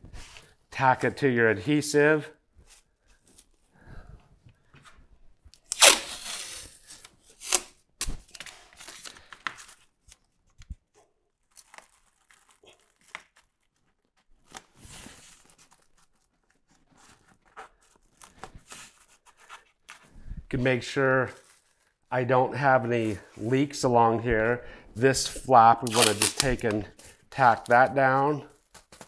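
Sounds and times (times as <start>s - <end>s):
tape ripping off roll: 5.6s - 9.1s, 25.8s - 26.8s
plastic film rustling: 11.3s - 20.1s, 21.3s - 22.0s, 25.8s - 29.0s.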